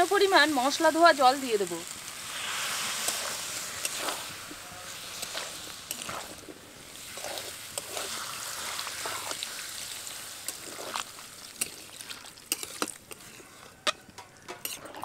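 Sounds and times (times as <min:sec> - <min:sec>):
water trickling into a pot: 0:06.9 - 0:14.7.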